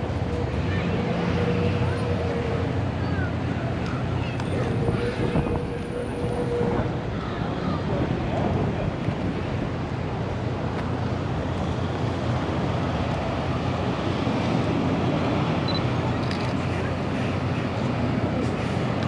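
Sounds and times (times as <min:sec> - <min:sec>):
wind rushing over microphone: 0:03.3 - 0:10.8.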